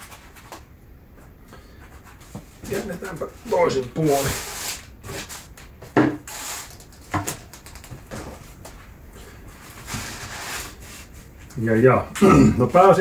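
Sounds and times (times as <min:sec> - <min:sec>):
paper rustling: 0:01.8 - 0:08.8.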